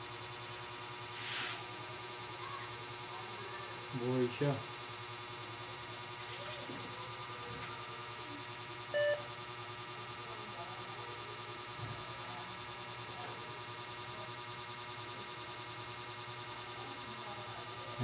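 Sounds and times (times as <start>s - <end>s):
steady electrical hum: 0.0s - 18.0s
short electronic beep: 9.0s - 9.2s.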